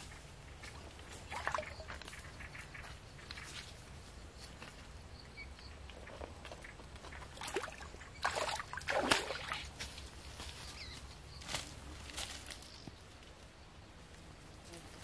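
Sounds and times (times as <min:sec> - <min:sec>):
dry leaves rustling and crackling: 0:09.6 - 0:13.4.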